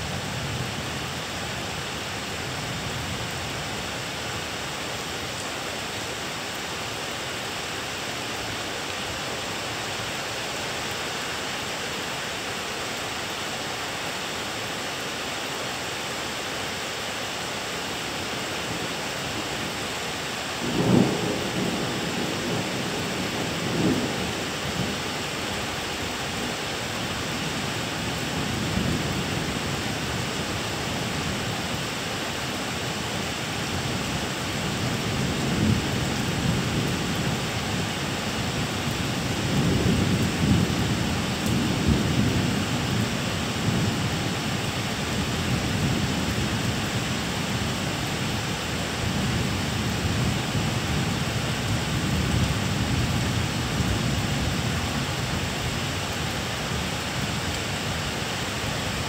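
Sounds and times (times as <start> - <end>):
rain hissing: 0.0 - 59.0
thunder rumbling: 20.6 - 25.0.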